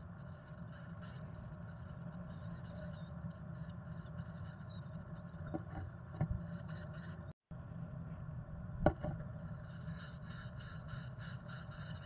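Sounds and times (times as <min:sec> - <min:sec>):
microphone hum and hiss: 0:05.4 - 0:12.0
soft knocks and scrapes on wood: 0:05.5 - 0:06.4, 0:08.8 - 0:09.2.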